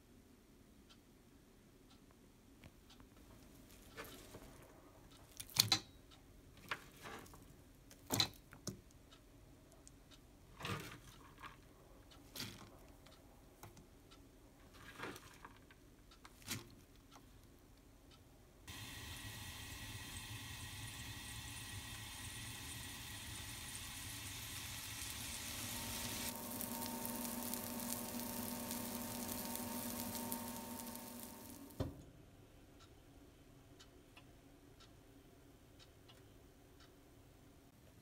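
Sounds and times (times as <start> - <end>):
steady hum: 18.7 - 31.8.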